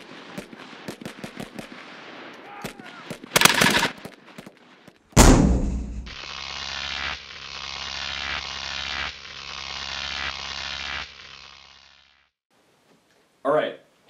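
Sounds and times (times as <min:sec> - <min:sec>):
loud gunshot: 0:05.2 - 0:06.2
mechanical rattling buzz: 0:05.2 - 0:12.3.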